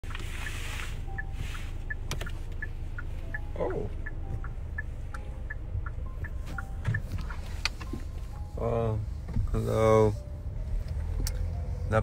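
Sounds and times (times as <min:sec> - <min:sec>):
car cabin rumble: 0:00.0 - 0:12.0
faint regular ticking: 0:00.1 - 0:08.4.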